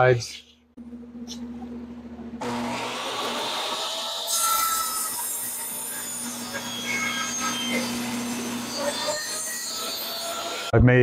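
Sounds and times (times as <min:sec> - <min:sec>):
dust collector running: 0:02.4 - 0:04.3, 0:05.5 - 0:10.7
saw blade cutting board: 0:02.4 - 0:10.7
table saw running: 0:02.4 - 0:10.7.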